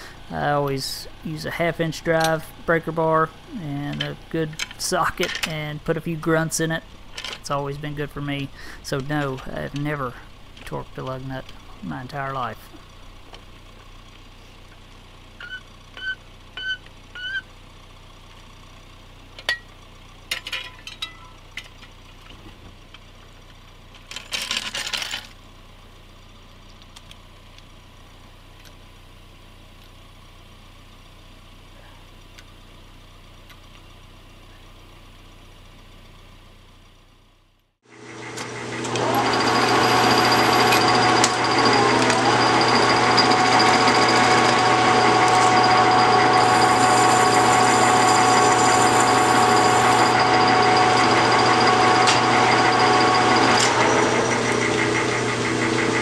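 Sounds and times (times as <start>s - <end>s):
metal lathe running: 0.0s - 12.2s, 37.8s - 56.0s.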